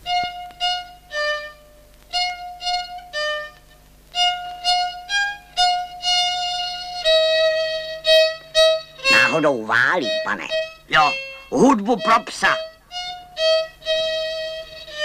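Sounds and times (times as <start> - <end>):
solo violin tune: 0.0 - 15.0.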